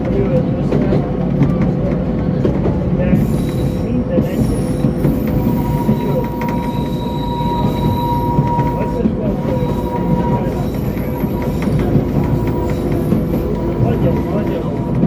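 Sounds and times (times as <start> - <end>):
train rumble: 0.0 - 15.0
train wheels squealing on rails: 3.1 - 15.0.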